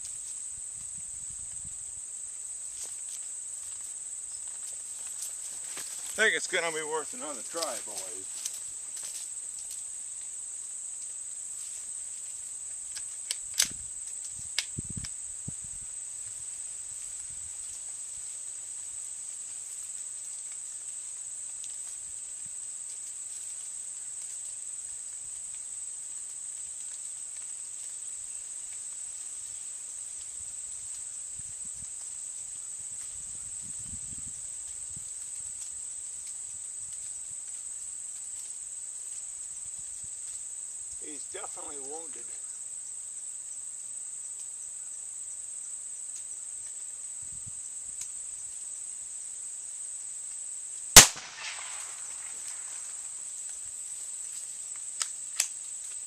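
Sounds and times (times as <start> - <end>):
insects chirring: 0.0 - 56.0
sharp clicks: 7.3 - 8.2.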